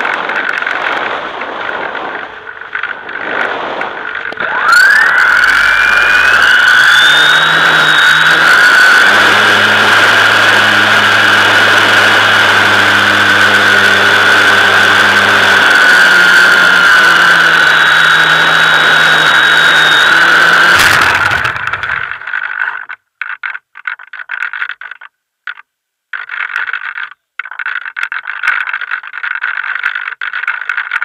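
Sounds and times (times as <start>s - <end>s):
model airplane motor whine: 0.0s - 23.0s.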